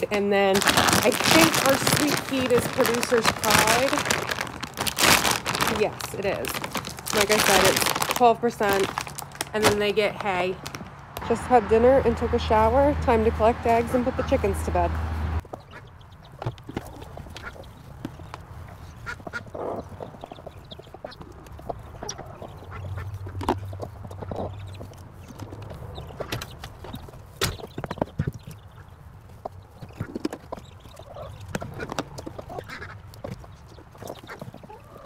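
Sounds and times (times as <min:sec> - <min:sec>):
poultry calling: 0:15.4 - 0:35.0.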